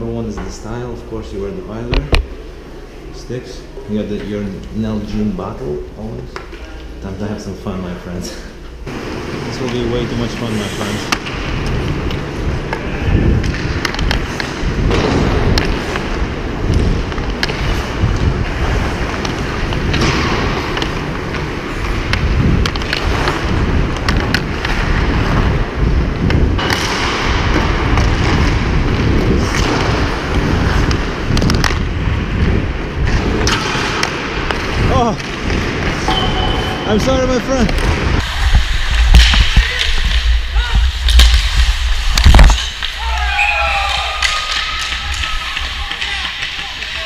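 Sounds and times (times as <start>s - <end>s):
steady low rumble: 0.0s - 43.0s
skates scraping on ice: 9.0s - 36.0s.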